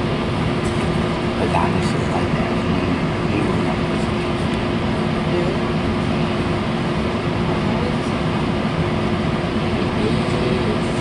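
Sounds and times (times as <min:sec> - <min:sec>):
constant mid-pitched hum: 0:00.0 - 0:11.0
train car low rumble: 0:00.0 - 0:11.0.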